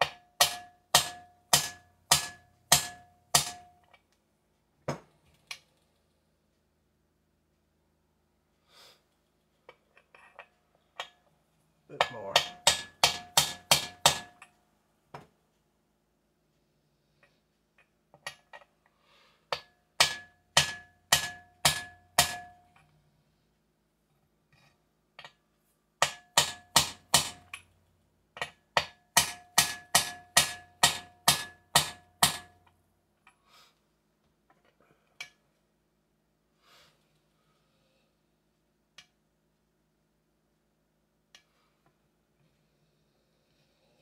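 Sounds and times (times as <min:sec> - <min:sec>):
hammer tapping on metal: 0:00.0 - 0:04.0, 0:12.0 - 0:14.5, 0:19.5 - 0:22.7, 0:26.0 - 0:27.7, 0:28.4 - 0:32.7.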